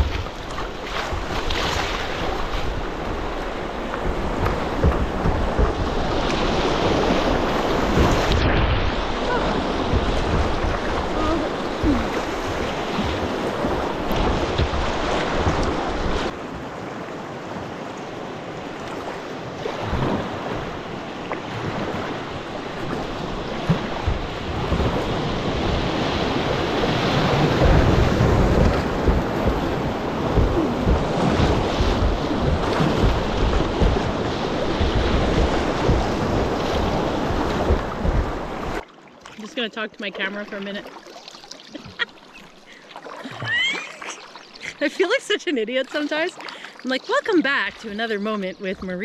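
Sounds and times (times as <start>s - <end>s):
wind buffeting microphone: 0.0s - 16.8s, 19.7s - 38.8s.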